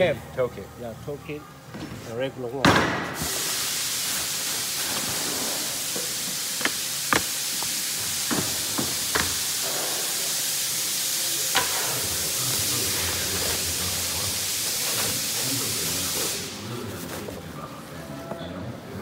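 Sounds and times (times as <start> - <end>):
plastic sheeting rustling: 3.3 - 5.9, 13.1 - 18.0.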